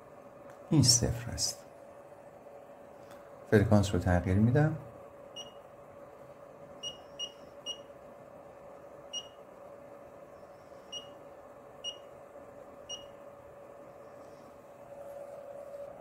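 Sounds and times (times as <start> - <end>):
faint steady tone: 5.0 - 16.0
short high-pitched beeps: 6.8 - 7.9, 9.1 - 9.4, 10.9 - 11.2.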